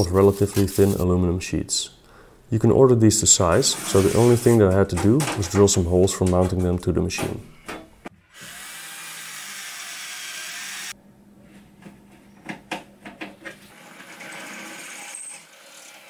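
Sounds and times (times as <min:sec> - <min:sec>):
cordless drill boring metal: 0:08.3 - 0:11.0, 0:13.8 - 0:16.0.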